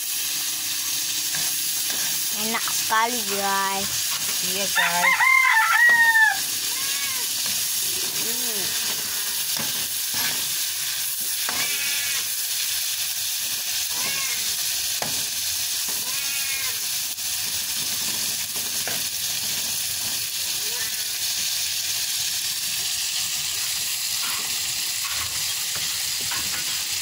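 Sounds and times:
shrimp sizzling in oil: 0.0s - 27.0s
spatula stirring in wok: 1.2s - 16.2s.

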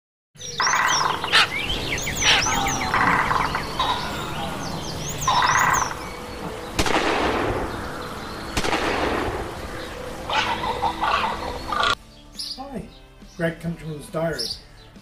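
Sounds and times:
birds chirping and calling: 0.4s - 15.0s
sharp crack: 6.7s - 10.0s.

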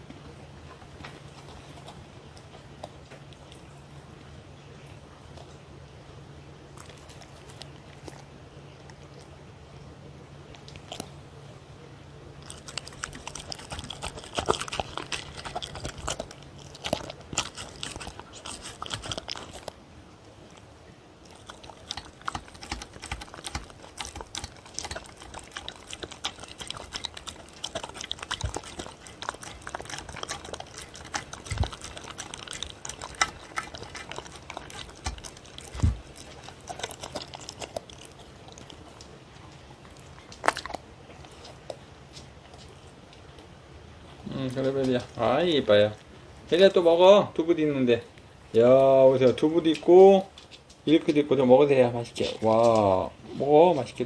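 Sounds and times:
dog chewing and licking: 0.0s - 9.5s, 10.4s - 11.2s, 12.2s - 43.5s.

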